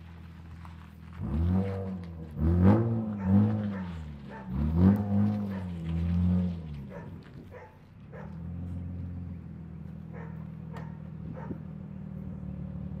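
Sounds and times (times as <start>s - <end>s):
car engine idling: 0.0s - 13.0s
dog barking: 3.2s - 4.7s, 5.5s - 5.8s, 6.9s - 8.4s, 10.1s - 11.6s.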